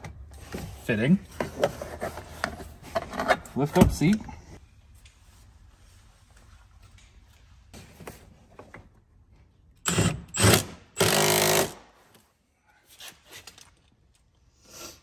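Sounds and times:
impact driver bursts: 9.8 - 11.8.

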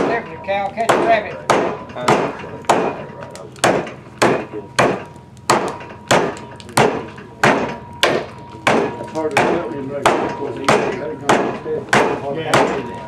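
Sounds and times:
chopping blows into wood: 3.6 - 12.8.

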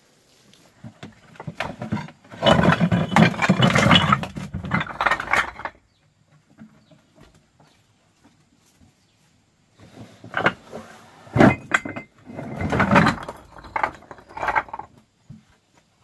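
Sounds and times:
stones clattering from bucket: 0.8 - 5.9, 10.2 - 15.0.

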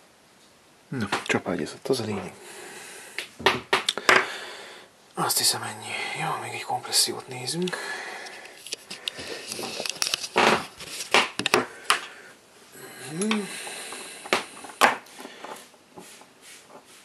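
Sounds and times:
metal and plastic parts clattering: 8.6 - 11.6.

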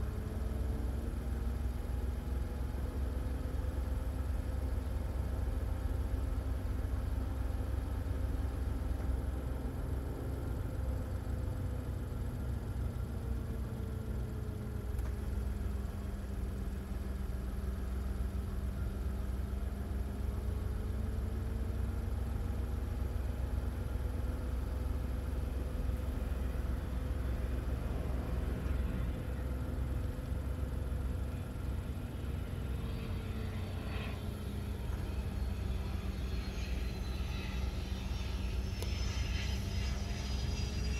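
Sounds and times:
turbine whine: 0.0 - 40.9
jet engines rumbling: 25.3 - 40.9.

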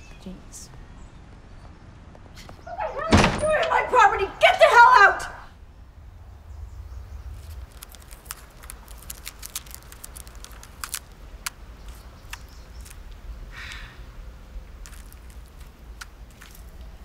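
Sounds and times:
low outdoor rumble: 0.0 - 17.0
tape torn off a roll: 7.4 - 13.2.

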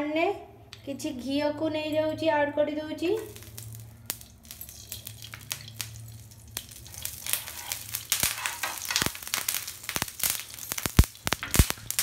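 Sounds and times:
ghee sizzling in a pan: 3.2 - 12.0.

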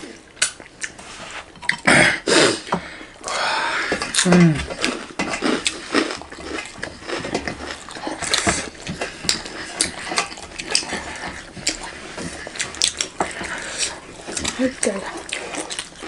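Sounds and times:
wet chewing and lip-smacking: 4.0 - 16.0.

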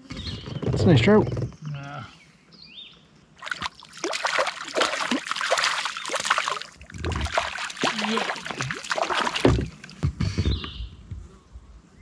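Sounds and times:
fish thrashing and splashing water: 3.4 - 10.0.

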